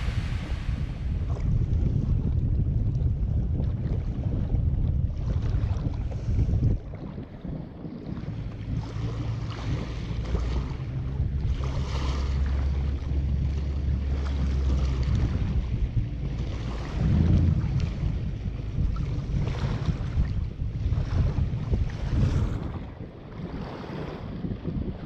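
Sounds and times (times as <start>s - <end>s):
low steady drone: 0.0s - 3.6s, 8.2s - 22.2s
water lapping at shore: 0.0s - 25.0s
wind buffeting microphone: 0.0s - 25.0s.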